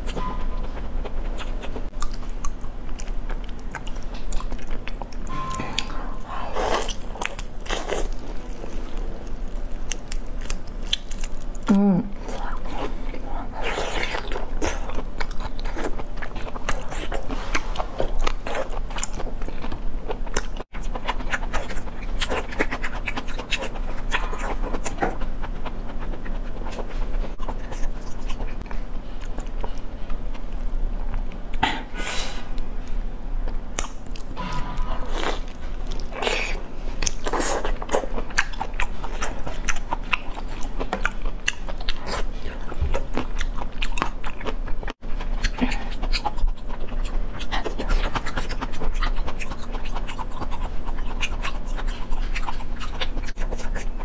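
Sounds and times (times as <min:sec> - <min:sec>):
wet chewing and sucking: 0:00.0 - 0:11.7, 0:33.5 - 0:54.0.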